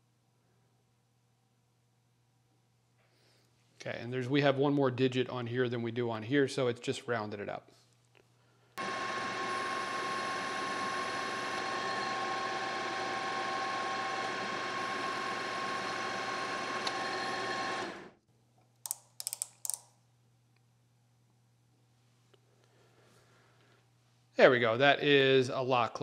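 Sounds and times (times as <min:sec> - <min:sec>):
metal lathe whining: 0:08.8 - 0:18.2
sharp clicks: 0:18.8 - 0:19.9.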